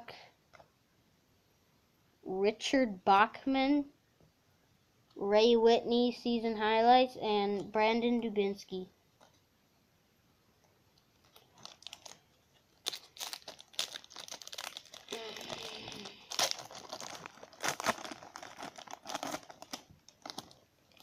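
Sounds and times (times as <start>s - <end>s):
wrapper tearing and crinkling: 11.1s - 21.0s.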